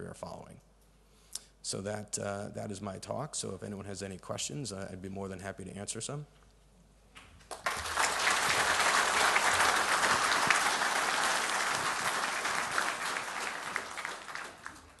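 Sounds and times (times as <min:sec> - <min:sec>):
audience applauding: 0:07.5 - 0:15.0.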